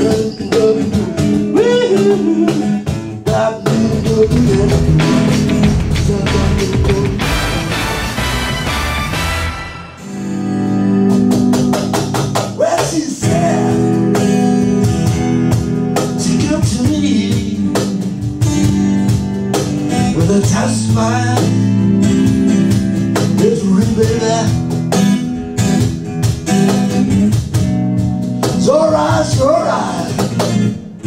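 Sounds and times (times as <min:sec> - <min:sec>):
person singing: 0:00.0 - 0:08.0, 0:12.6 - 0:15.4, 0:28.5 - 0:30.5
acoustic guitar strumming: 0:00.0 - 0:31.0.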